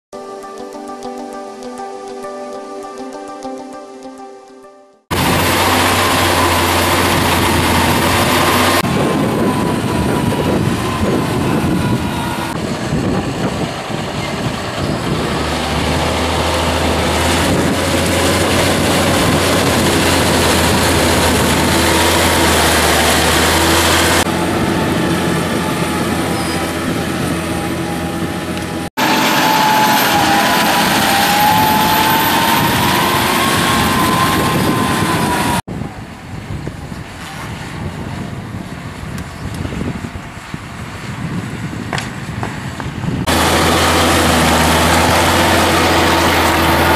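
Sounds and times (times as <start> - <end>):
steady whine: 5.1 - 36.2
tractor diesel engine under load: 5.1 - 46.9.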